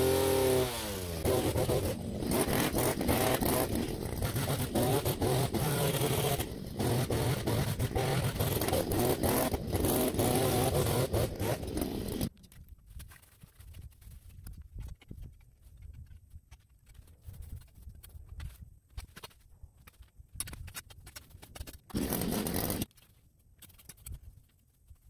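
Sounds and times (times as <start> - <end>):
hedge trimmer engine idling: 0.0 - 12.3, 22.0 - 22.8.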